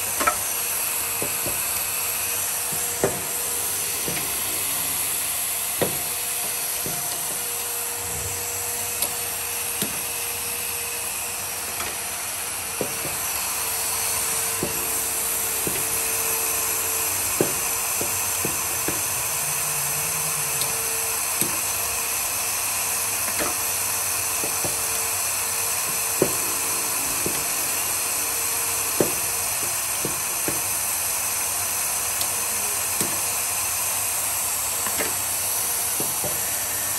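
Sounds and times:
pneumatic machine hissing: 0.0 - 36.9.

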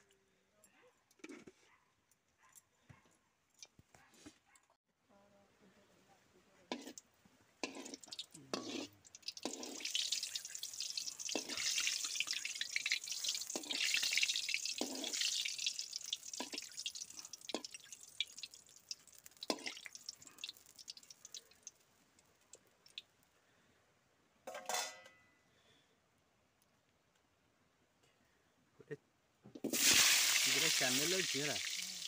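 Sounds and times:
seeds popping in hot oil: 6.7 - 23.1, 29.5 - 32.0.

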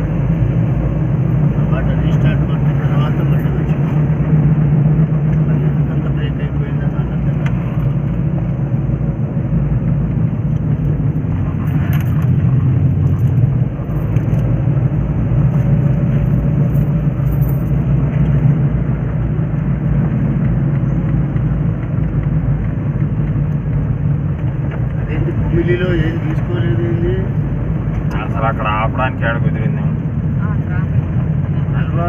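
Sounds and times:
car engine and tyre rumble: 0.0 - 32.0.

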